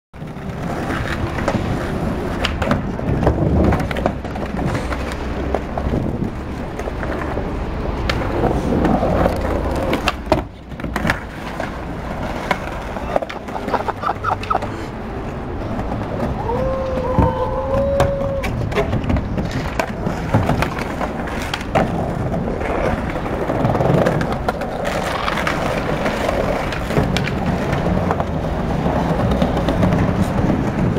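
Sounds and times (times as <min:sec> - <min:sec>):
skateboard clicks and clacks: 0:00.2 - 0:30.9
skateboard wheels rolling on stone: 0:00.2 - 0:30.9.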